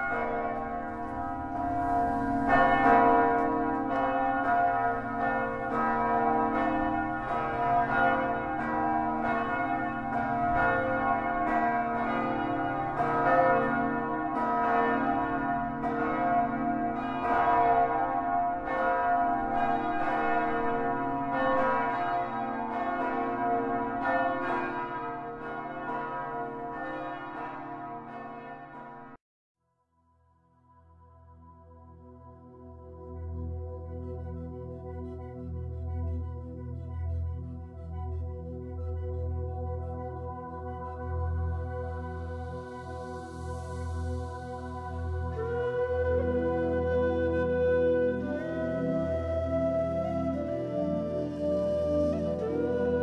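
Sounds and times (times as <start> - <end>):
church bells pealing: 0.0 - 29.2, 39.9 - 53.0.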